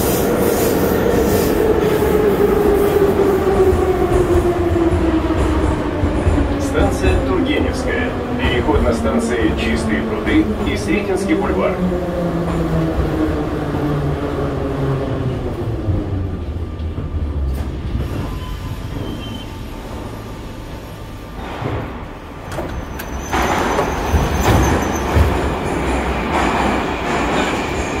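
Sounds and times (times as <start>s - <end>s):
train low hum: 0.0s - 28.0s
train doors opening: 16.8s - 28.0s.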